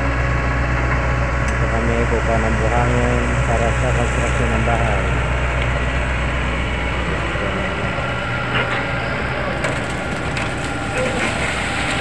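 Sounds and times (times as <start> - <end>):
excavator diesel engine running: 0.0 - 12.0.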